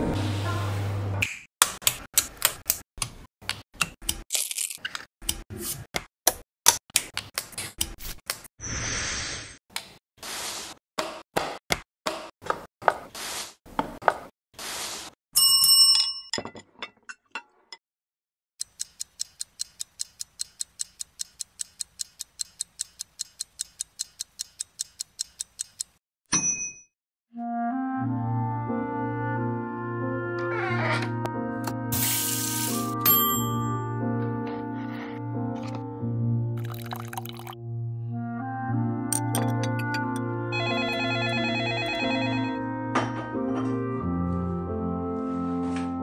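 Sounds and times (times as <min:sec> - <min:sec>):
rapid even ticking: 0:18.6 - 0:26.0.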